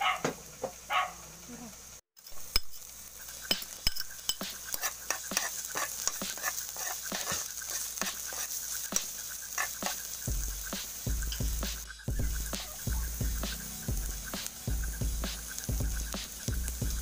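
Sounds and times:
oil sizzling: 0:00.2 - 0:17.0
utensil scraping frying pan: 0:02.2 - 0:11.8.

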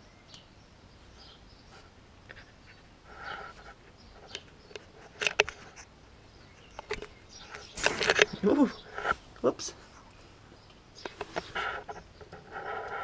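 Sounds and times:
puppy paws tapping on concrete: 0:03.5 - 0:13.0.

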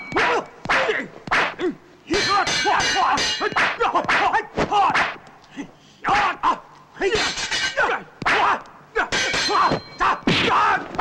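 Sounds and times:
ringing metal clangs: 0:00.0 - 0:00.5, 0:02.1 - 0:03.8, 0:07.1 - 0:07.9, 0:09.1 - 0:10.3
fighters shouting and grunting: 0:00.0 - 0:11.0.

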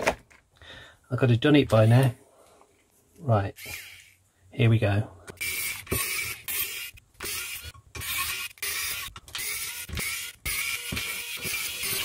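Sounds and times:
electric screwdriver motor whine: 0:05.4 - 0:12.0.

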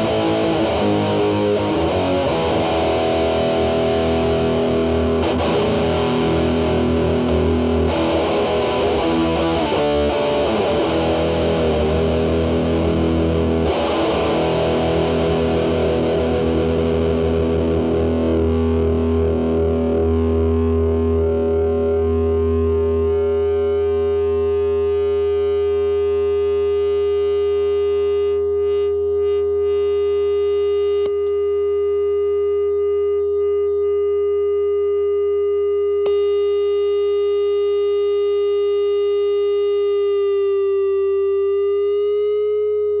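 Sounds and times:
distorted electric guitar note: 0:00.0 - 0:30.0
low amp hum: 0:00.0 - 0:43.0.

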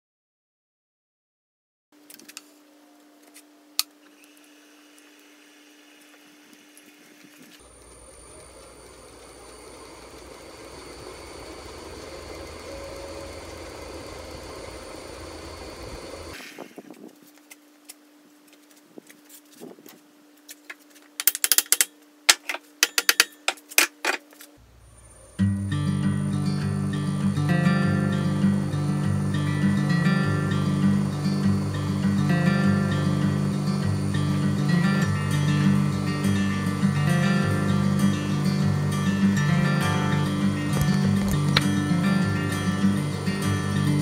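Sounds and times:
wood lathe deep rumble: 0:07.6 - 0:16.4, 0:28.1 - 0:44.0.

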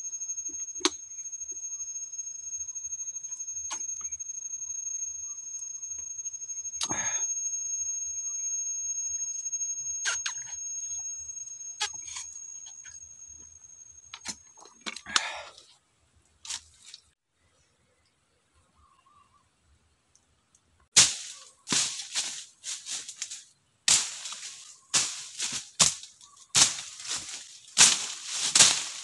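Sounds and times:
cicadas droning: 0:00.0 - 0:15.5, 0:21.0 - 0:29.0.

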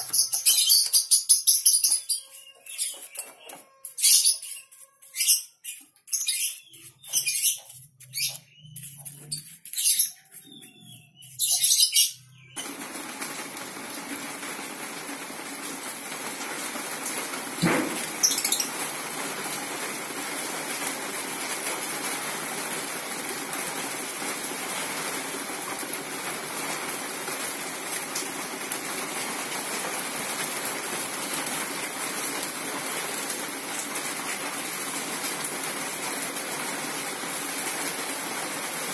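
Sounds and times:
sharp knock: 0:17.6 - 0:18.1.

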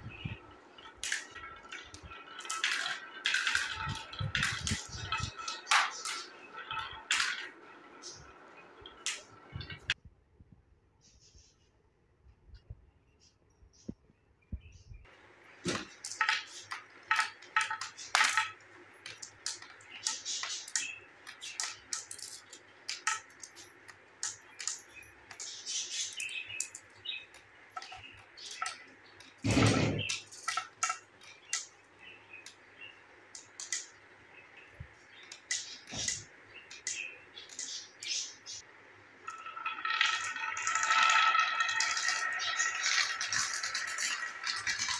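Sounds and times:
glass marbles clicking: 0:00.2 - 0:10.0, 0:15.8 - 0:31.8, 0:33.4 - 0:34.0, 0:39.2 - 0:44.9.

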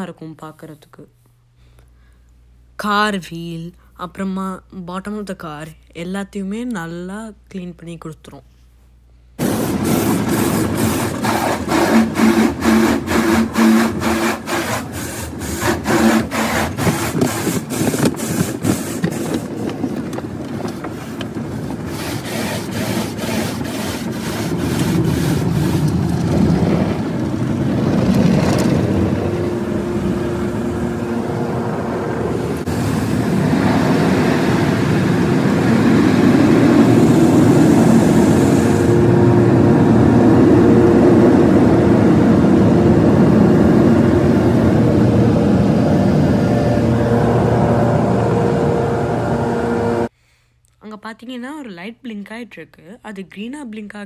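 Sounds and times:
steady rushing noise with hum: 0:09.3 - 0:50.2
water spray: 0:09.4 - 0:19.4
car wash brushes slapping car: 0:09.4 - 0:50.1.

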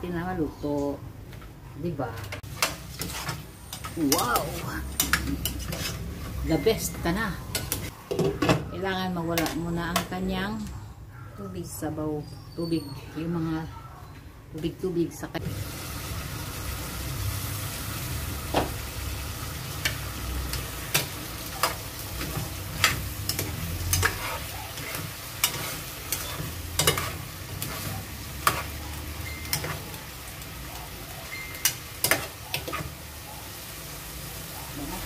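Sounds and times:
chicken sizzling: 0:02.4 - 0:07.9, 0:15.4 - 0:35.0
spatula scraping a pot: 0:02.4 - 0:07.9, 0:21.6 - 0:30.0.

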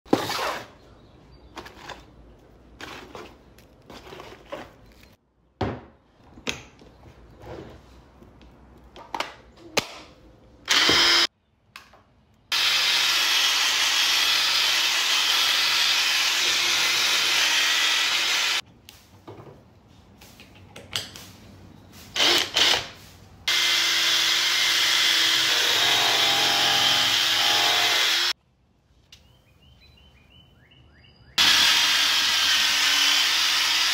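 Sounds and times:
drill brush abrading wood: 0:10.7 - 0:11.3, 0:12.5 - 0:18.6, 0:22.1 - 0:28.4, 0:31.4 - 0:33.9.

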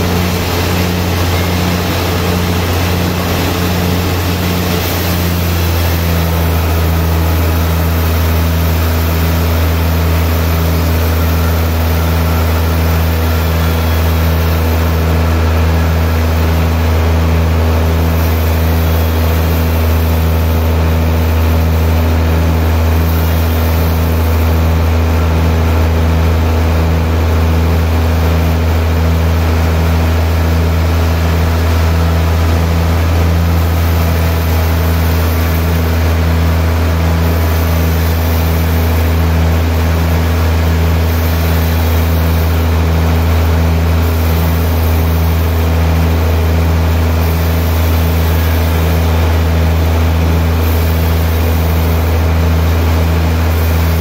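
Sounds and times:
band saw cutting log: 0:00.0 - 0:26.3.

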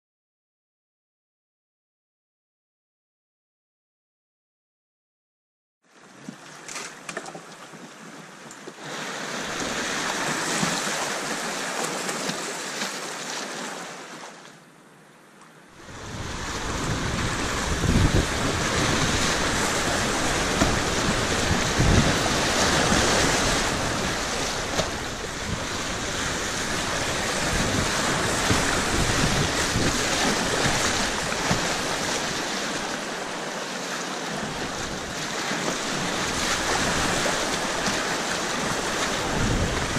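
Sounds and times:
rapids rushing and splashing: 0:08.7 - 0:14.4, 0:15.7 - 0:39.9
wind buffeting microphone: 0:15.8 - 0:33.1, 0:34.5 - 0:39.9
water thumping against boat: 0:16.8 - 0:32.4.

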